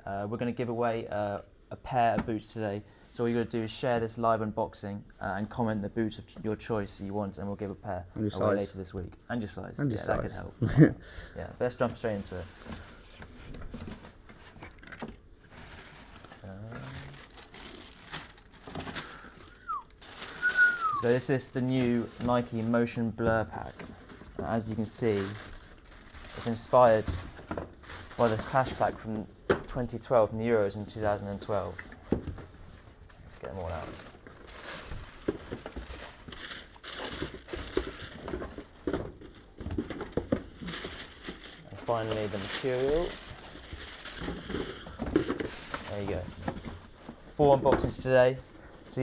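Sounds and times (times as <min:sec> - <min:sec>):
tissue paper crinkling: 0:15.4 - 0:23.0, 0:23.6 - 0:29.0, 0:33.1 - 0:47.0.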